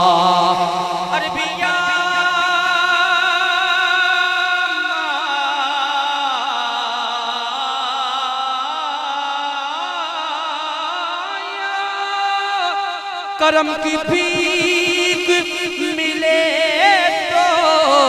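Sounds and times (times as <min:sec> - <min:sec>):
man singing into a microphone: 0:00.0 - 0:18.0.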